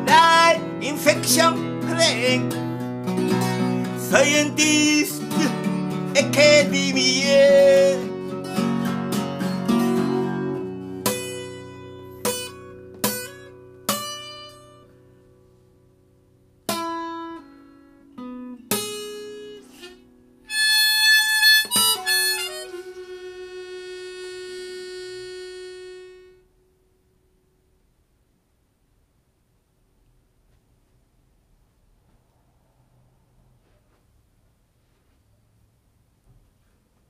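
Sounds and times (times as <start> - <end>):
harmonica phrase: 0.0 - 8.6, 19.6 - 26.7
acoustic guitar strummed: 0.0 - 27.5.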